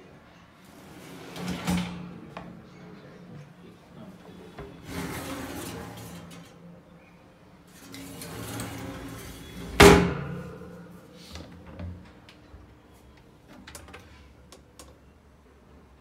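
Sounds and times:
drawer sliding shut: 1.1 - 2.1.

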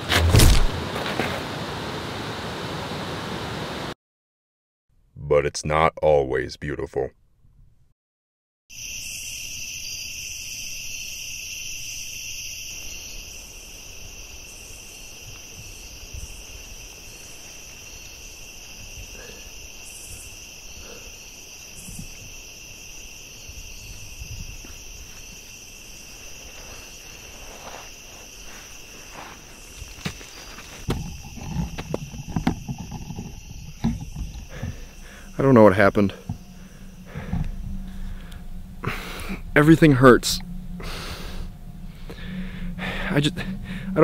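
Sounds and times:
crickets trilling: 8.7 - 44.0
dry leaves rustling: 24.6 - 31.3.

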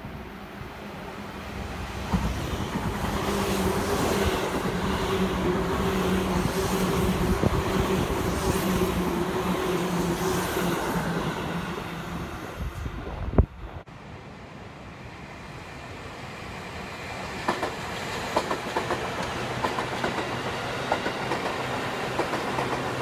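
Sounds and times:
train wheels rumbling on rails: 16.7 - 23.0.

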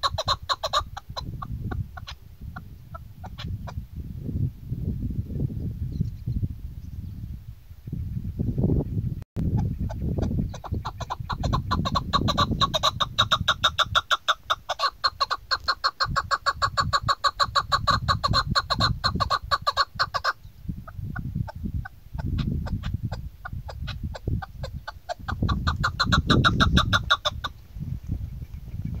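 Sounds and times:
partridge chuck calls: 0.0 - 3.8, 9.5 - 27.6.

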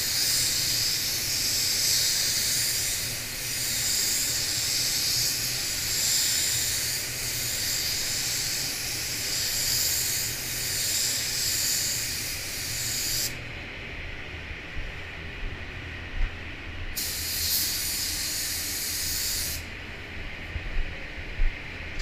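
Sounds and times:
spray gun hissing: 0.0 - 13.4, 17.0 - 19.7
low steady hum: 0.0 - 22.0.

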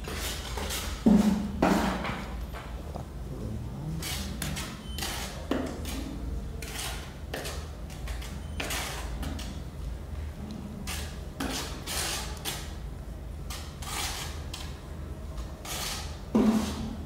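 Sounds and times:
trowel scraping mortar on tile: 0.0 - 2.0, 4.0 - 9.6, 10.8 - 12.7, 13.5 - 14.7, 15.6 - 17.0.

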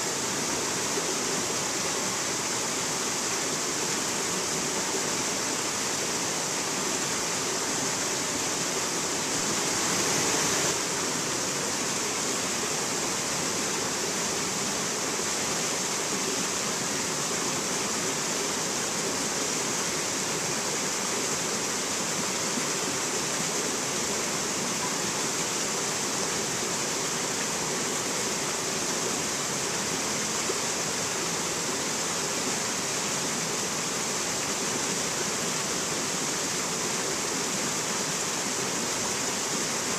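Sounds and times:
stream rushing over boulders: 0.0 - 39.9.

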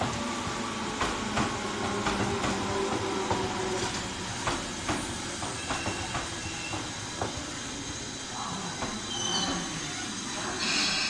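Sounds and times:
low train rumble: 0.0 - 11.0
train wheels clattering over rail joints: 1.0 - 7.5
faint high squeal: 9.1 - 10.1.

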